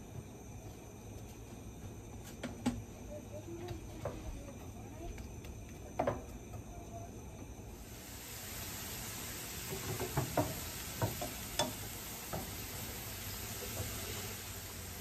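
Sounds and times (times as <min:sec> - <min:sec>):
onions sizzling in hot oil: 0:07.7 - 0:15.0.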